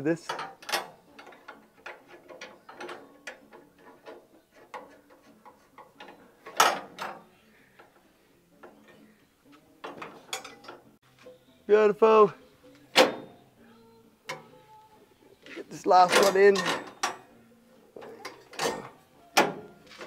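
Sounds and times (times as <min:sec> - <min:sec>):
metal clicks and clunks of bolts: 0:00.2 - 0:07.9, 0:09.8 - 0:10.9, 0:14.3 - 0:14.6, 0:16.0 - 0:17.3, 0:18.0 - 0:20.0.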